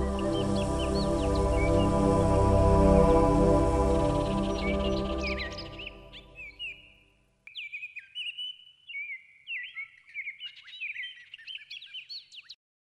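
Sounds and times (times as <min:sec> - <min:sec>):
music track: 0:00.0 - 0:06.4
songbirds chirping: 0:00.0 - 0:12.6.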